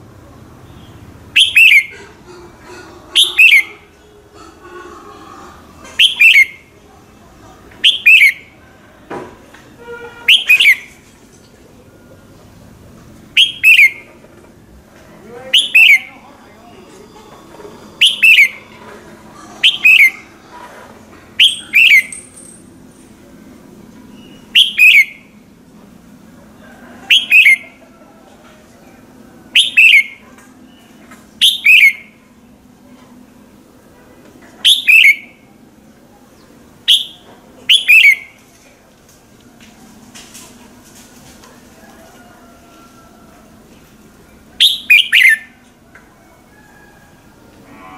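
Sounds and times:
bulbul singing: 0:00.6 - 0:01.9, 0:03.2 - 0:03.9, 0:05.9 - 0:06.7, 0:07.8 - 0:08.5, 0:10.3 - 0:11.0, 0:13.4 - 0:14.1, 0:15.5 - 0:18.6, 0:19.6 - 0:20.3, 0:21.4 - 0:22.6, 0:24.1 - 0:25.4, 0:27.1 - 0:27.6, 0:29.5 - 0:32.2, 0:34.6 - 0:35.4, 0:36.4 - 0:38.4, 0:44.5 - 0:45.6.

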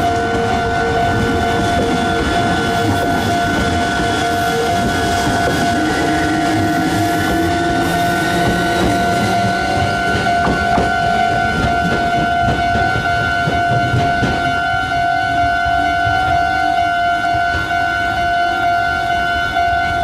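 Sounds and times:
steady high tone: 0:00.0 - 0:19.8
train wheel-on-rail rumble: 0:00.0 - 0:20.0
knocks from rail joints: 0:02.9 - 0:14.6
whine rising in pitch: 0:04.3 - 0:11.3.

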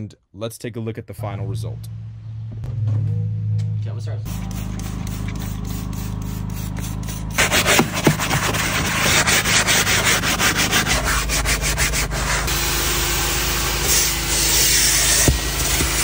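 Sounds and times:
steady low hum: 0:01.1 - 0:16.0
brush scrubbing upholstery: 0:04.3 - 0:12.5.

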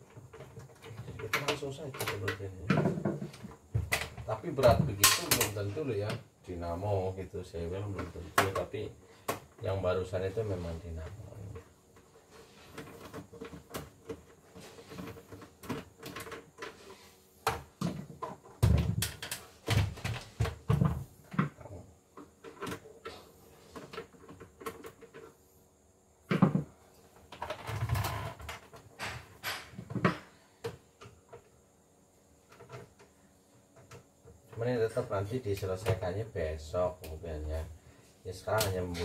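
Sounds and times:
plastic housing knocks and rattles: 0:00.1 - 0:05.5.

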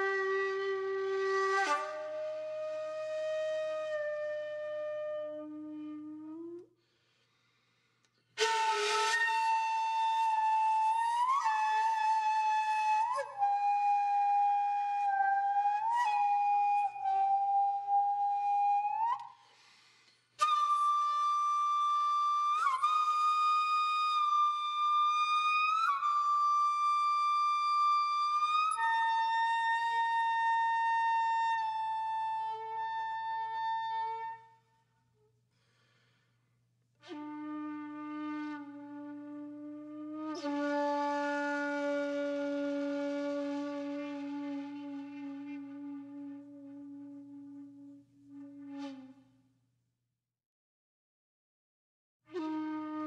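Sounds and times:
flute-like wind instrument: 0:00.0 - 0:06.8, 0:08.4 - 0:19.8, 0:20.4 - 0:35.0, 0:37.0 - 0:49.6, 0:52.3 - 0:53.0.

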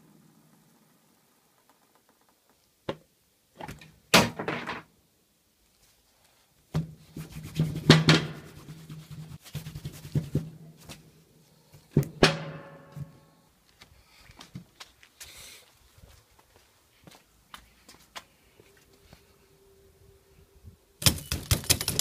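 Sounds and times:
knocks and clatters: 0:21.0 - 0:22.0.

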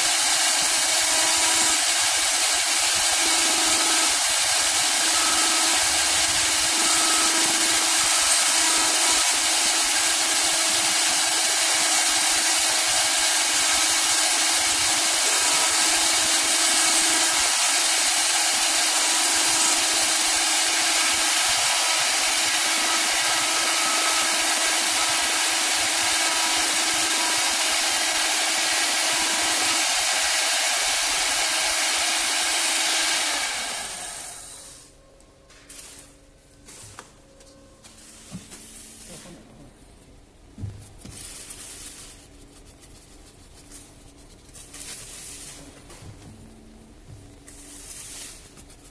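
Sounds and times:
hiss of cutting wood: 0:00.0 - 0:34.9.

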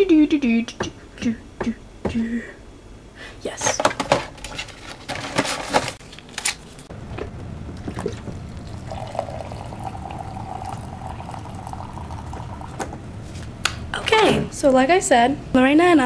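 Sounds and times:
steady filling tone: 0:06.9 - 0:13.2
water pouring into container: 0:07.8 - 0:12.8.

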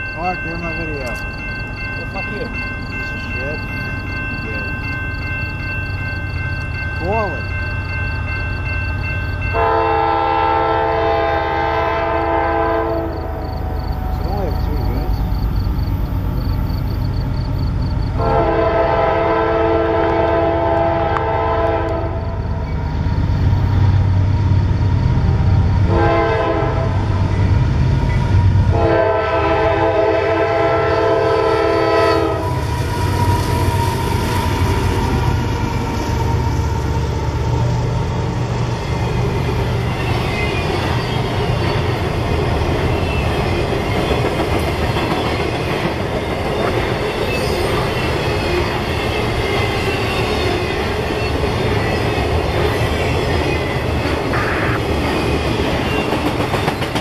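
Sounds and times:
train wheels on rails: 0:00.0 - 0:57.0
locomotive air horn blasts: 0:09.6 - 0:13.4, 0:18.2 - 0:22.2, 0:25.9 - 0:27.0, 0:28.7 - 0:32.5.

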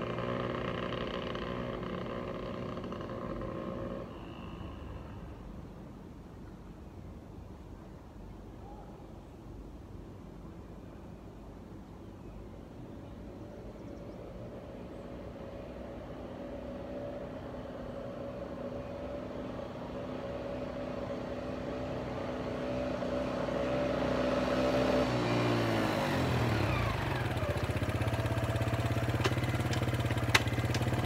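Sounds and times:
small atv engine: 0:00.0 - 0:05.7, 0:13.9 - 0:31.0.

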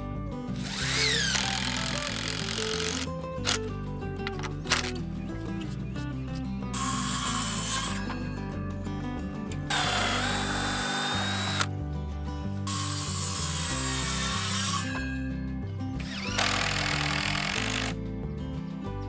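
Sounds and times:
background music: 0:00.0 - 0:19.0
cordless drill drilling into wood: 0:00.6 - 0:03.1, 0:06.8 - 0:08.0, 0:09.7 - 0:11.7, 0:12.7 - 0:15.0, 0:16.0 - 0:18.0.

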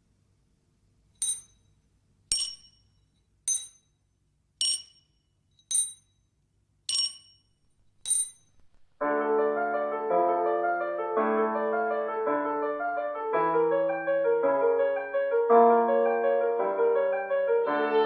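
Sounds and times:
bright bell dings: 0:01.2 - 0:01.7, 0:06.9 - 0:07.4
piano music: 0:09.0 - 0:18.0.

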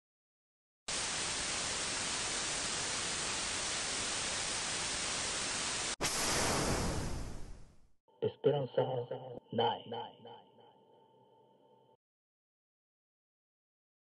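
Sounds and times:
hissing static noise: 0:00.9 - 0:07.8
bright burst of noise: 0:00.9 - 0:07.9.

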